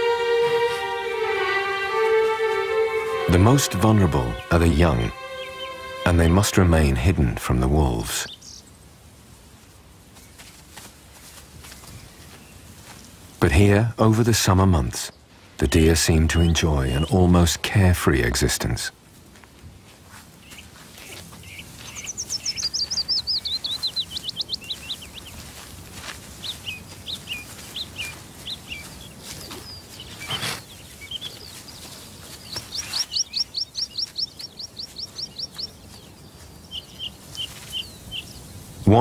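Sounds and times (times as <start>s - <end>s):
bird chirps: 0.6s - 6.6s, 20.4s - 25.7s, 26.3s - 39.0s
songbird trilling: 4.3s - 6.1s, 20.4s - 25.4s, 26.4s - 38.6s.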